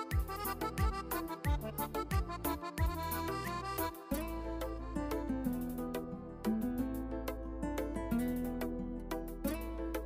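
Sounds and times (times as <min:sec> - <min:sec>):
plucked guitar-like music: 0:00.0 - 0:10.0.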